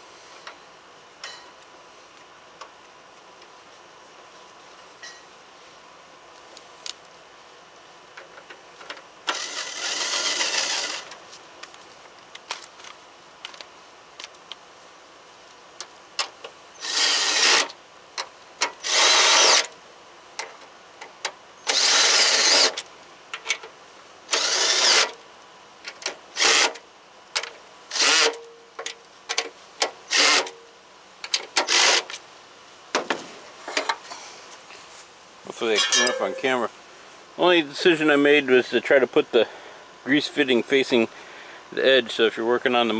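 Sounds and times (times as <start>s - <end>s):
cordless drill bursts: 9.3s - 11.1s, 16.8s - 17.7s, 18.8s - 19.7s, 21.6s - 22.8s, 24.3s - 25.1s, 26.4s - 26.8s, 27.9s - 28.4s, 30.1s - 30.5s.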